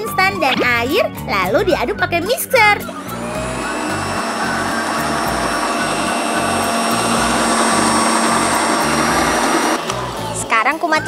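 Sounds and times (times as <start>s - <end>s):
stand mixer motor whirring: 2.8s - 10.5s.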